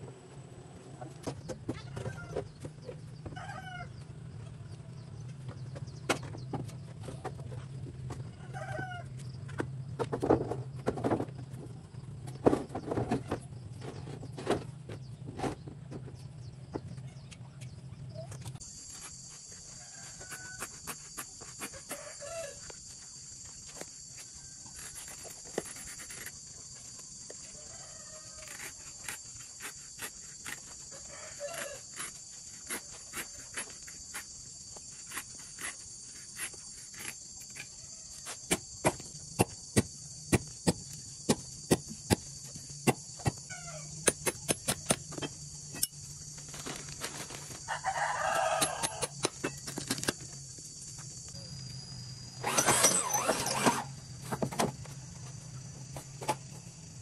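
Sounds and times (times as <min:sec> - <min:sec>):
machete chopping tyre rubber: 0:38.3 - 0:43.4.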